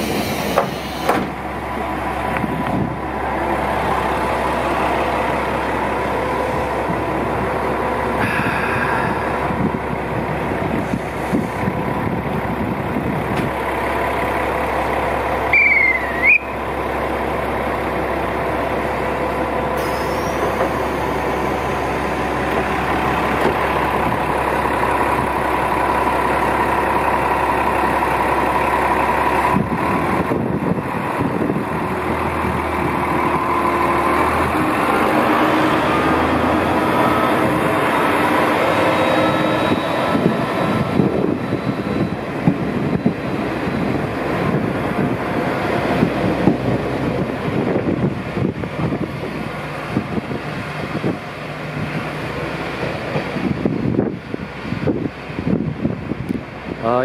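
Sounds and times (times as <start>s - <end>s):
diesel engine idling: 0.0s - 57.0s
high whistle-like call: 15.5s - 16.6s.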